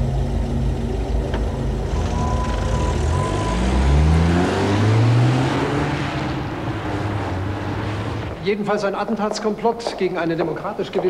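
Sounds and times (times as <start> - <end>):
car engine accelerating: 0.0 - 8.4.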